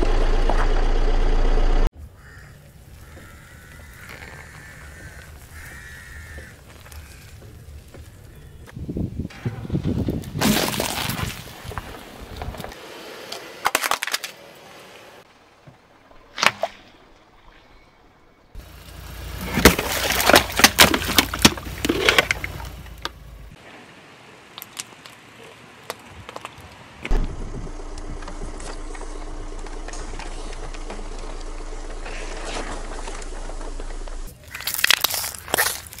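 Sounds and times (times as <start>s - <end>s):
batteries crackling under car tyre: 2.2s - 8.4s, 19.4s - 23.2s, 24.4s - 27.2s, 27.9s - 36.0s
sharp crack: 16.3s - 17.0s, 27.0s - 31.5s
steady low hum: 27.1s - 34.3s.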